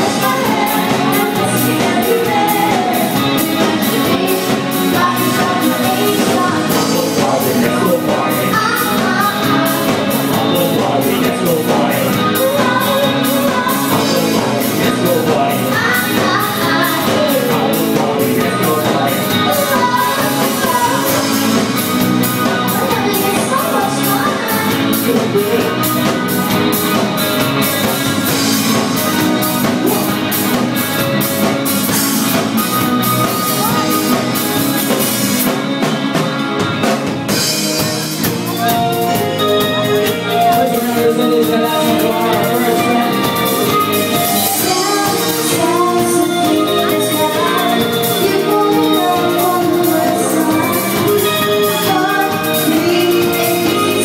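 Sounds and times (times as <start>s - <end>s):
woman singing into a microphone: 0.0s - 21.5s, 22.4s - 25.9s, 40.4s - 54.0s
drum kit steady beat: 0.0s - 54.0s
live pop-rock band: 0.0s - 54.0s.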